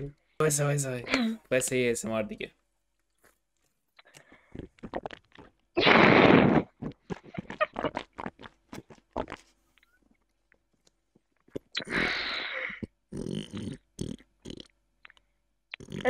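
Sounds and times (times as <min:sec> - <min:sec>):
wet mouth clicks and smacks: 0:04.0 - 0:05.6, 0:06.8 - 0:09.5.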